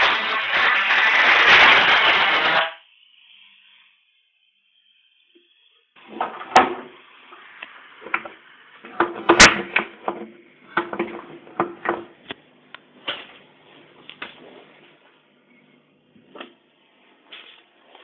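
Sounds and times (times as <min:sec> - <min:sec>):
sharp cracks: 0:00.0 - 0:02.8.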